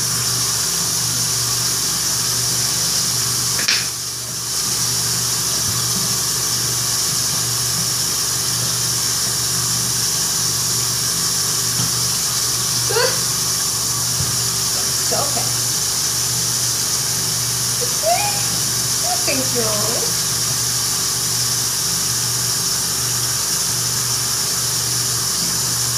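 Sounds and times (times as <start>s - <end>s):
tap running into sink: 3.5s - 4.8s, 5.5s - 6.3s, 11.7s - 12.0s, 14.0s - 14.6s.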